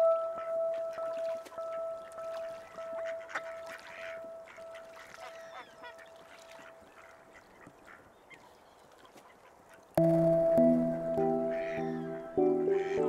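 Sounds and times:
held pulsing musical tone: 0:00.0 - 0:06.4, 0:10.0 - 0:13.0
waterfowl calling: 0:00.0 - 0:13.0.

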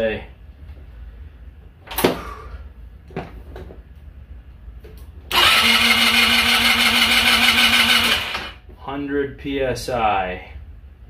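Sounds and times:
scooter engine cranking on starter: 0:05.3 - 0:08.6.

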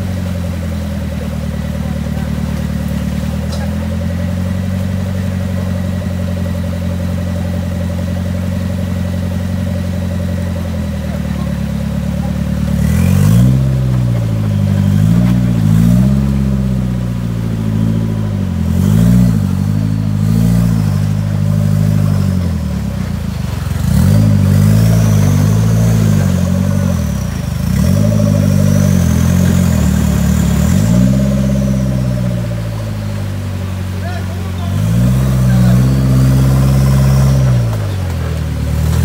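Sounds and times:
engine revving hard: 0:10.9 - 0:23.0, 0:23.6 - 0:39.0.

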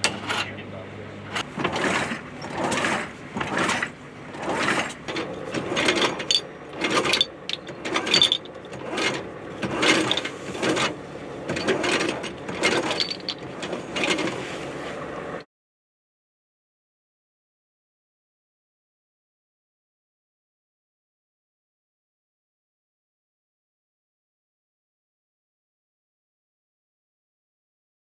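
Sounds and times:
metallic clanks and ratcheting: 0:01.4 - 0:14.4.

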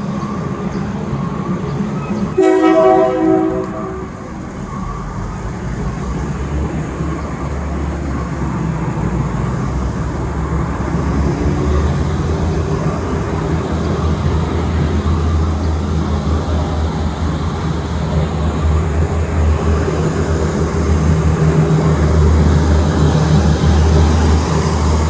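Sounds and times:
locomotive engine droning: 0:00.0 - 0:25.0
locomotive horn blast: 0:02.3 - 0:04.4.

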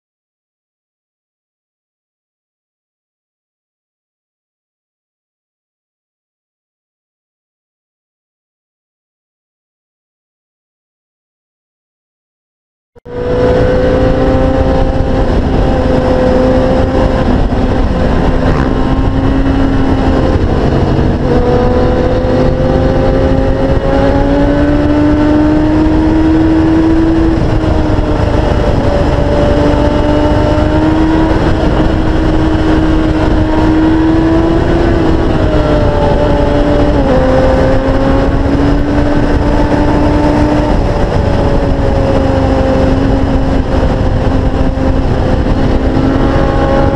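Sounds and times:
motorcycle engine at high speed: 0:13.0 - 0:46.9
wind rush on microphone: 0:13.1 - 0:46.9.

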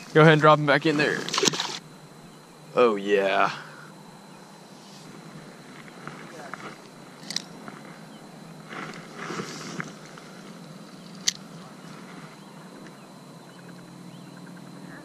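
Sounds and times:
fishing line rushing off reel: 0:01.1 - 0:01.8.

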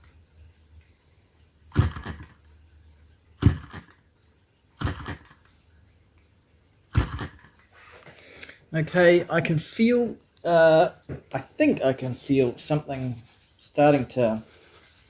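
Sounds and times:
hand slapping engine flywheels: 0:01.7 - 0:02.3, 0:03.4 - 0:03.9.

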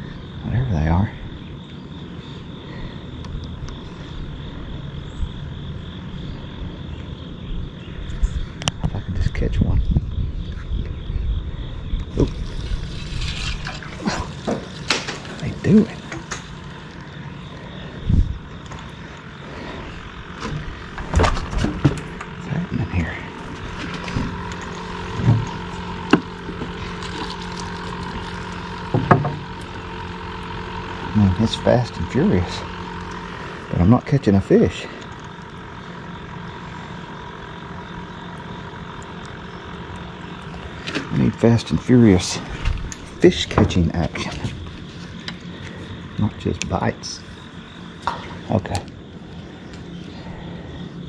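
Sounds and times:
steady mechanical hum: 0:00.0 - 0:51.0
thin high drone: 0:11.0 - 0:51.0.

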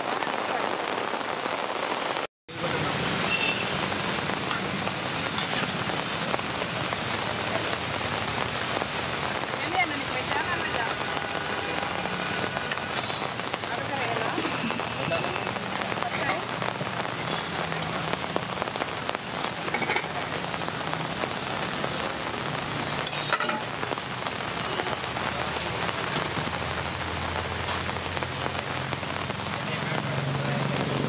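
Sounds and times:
rain on a wet street: 0:00.0 - 0:31.0
clinks of steel vessels and ladle: 0:23.0 - 0:23.7.

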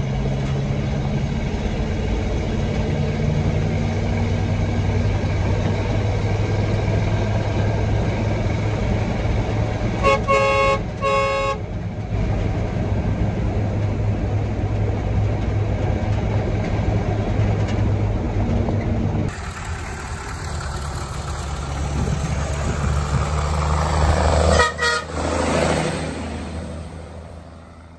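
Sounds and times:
vehicle engine running: 0:00.0 - 0:27.9
short horn toots: 0:10.0 - 0:11.6, 0:24.4 - 0:25.2.

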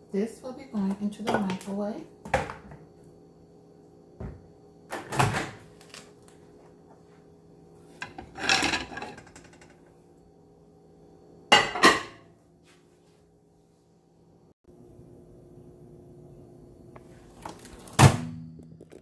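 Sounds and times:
faint steady hum: 0:00.0 - 0:19.0
plate rustling and scraping: 0:07.8 - 0:09.9.

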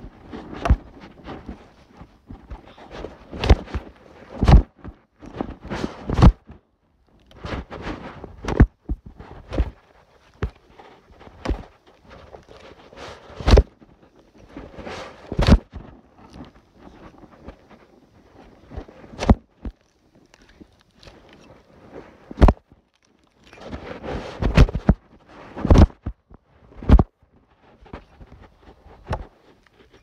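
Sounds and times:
sharp knocks and thuds: 0:22.4 - 0:22.6.

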